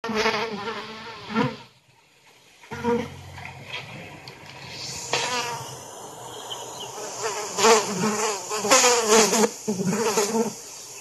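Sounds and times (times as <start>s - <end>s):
flying insect buzzing: 4.6s - 11.0s.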